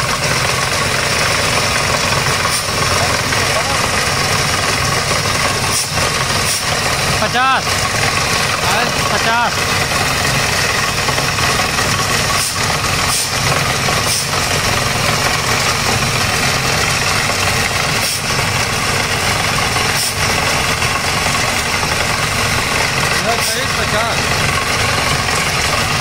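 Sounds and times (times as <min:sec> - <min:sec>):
drilling rig machinery drone: 0:00.0 - 0:26.0.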